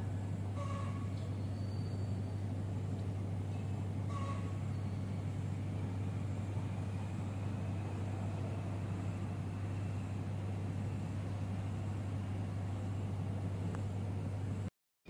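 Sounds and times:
rumbling background noise: 0.0s - 14.7s.

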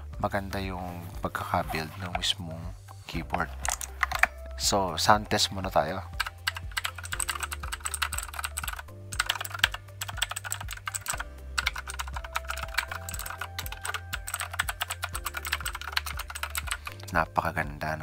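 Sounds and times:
mechanical keyboard typing: 3.6s - 4.3s, 6.2s - 16.9s.

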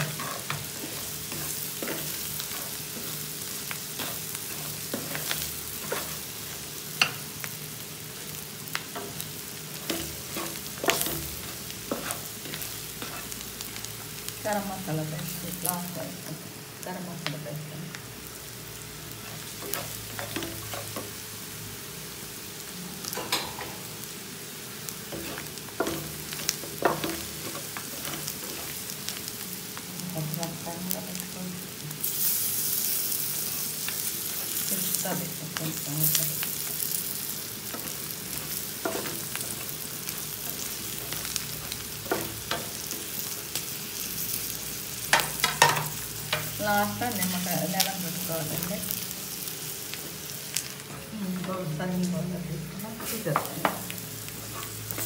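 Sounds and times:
meat sizzling in oil: 0.0s - 55.0s
wooden spatula scraping a pan: 25.2s - 28.8s.

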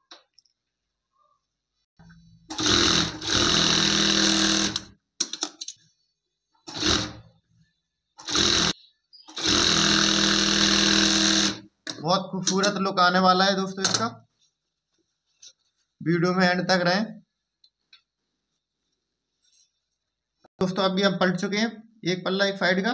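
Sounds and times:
sewing machine motor running: 2.5s - 4.9s, 6.7s - 7.2s, 8.2s - 11.6s.

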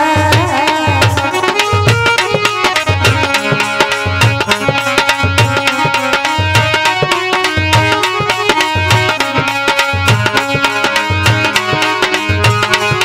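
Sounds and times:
hand drum rhythm: 0.0s - 13.0s
harmonium melody: 0.0s - 13.0s.

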